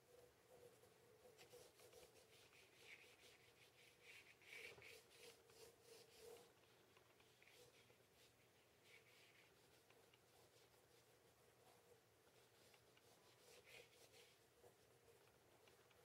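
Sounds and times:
pencil scratching on paper: 0.1 - 16.0.

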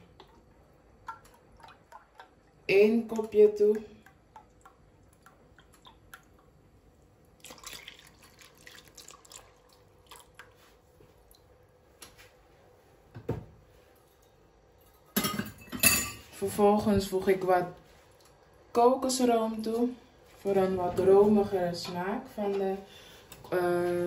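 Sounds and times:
liquid dripping into pot: 0.0 - 11.6.

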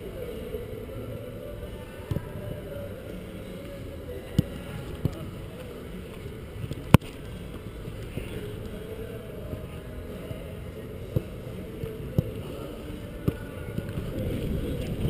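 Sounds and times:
wind rumbling on microphone: 11.9 - 15.0.

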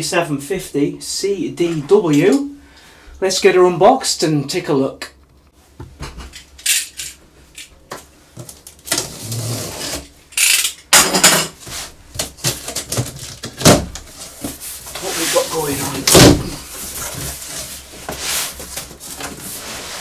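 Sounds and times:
tape and cardboard scraping tearing: 8.4 - 10.6
box cutter slitting tape: 8.9 - 10.8.

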